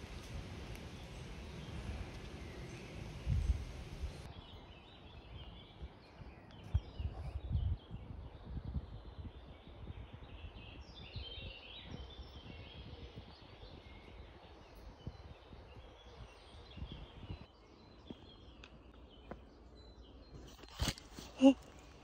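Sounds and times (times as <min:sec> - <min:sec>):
songbirds chirping: 0:00.0 - 0:22.0.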